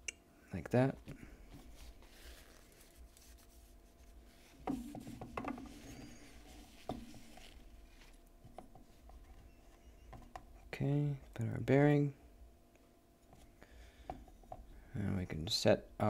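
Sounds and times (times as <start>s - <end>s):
cloth rubbing: 1.5s - 8.2s.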